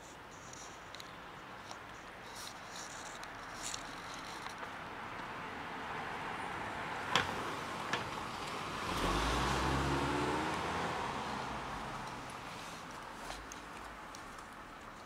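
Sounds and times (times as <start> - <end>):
car passing by: 5.2 - 13.0.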